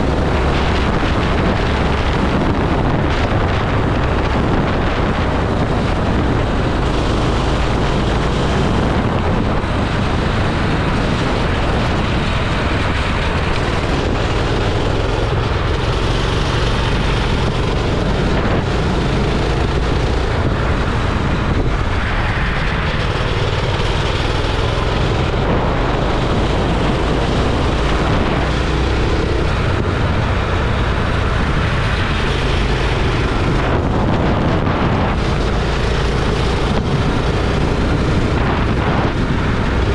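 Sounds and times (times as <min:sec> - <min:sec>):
go-kart engine running: 0:00.0 - 0:39.9
wind buffeting microphone: 0:00.0 - 0:39.9.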